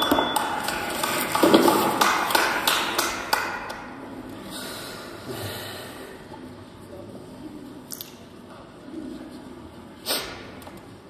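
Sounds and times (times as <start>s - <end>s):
audience clapping: 0.0s - 3.8s.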